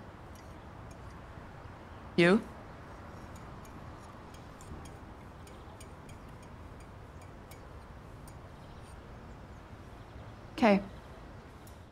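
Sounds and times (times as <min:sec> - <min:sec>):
spoon clicking against cup: 0:03.0 - 0:08.4.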